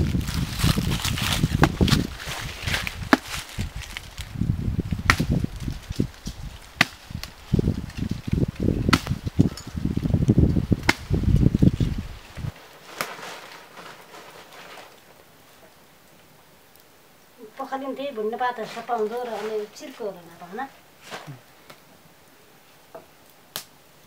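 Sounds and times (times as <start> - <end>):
low rumbling: 0.0 - 12.6
rustling leaves and brush: 0.0 - 24.0
sharp crack: 5.0 - 7.4, 10.8 - 11.2, 23.5 - 23.8.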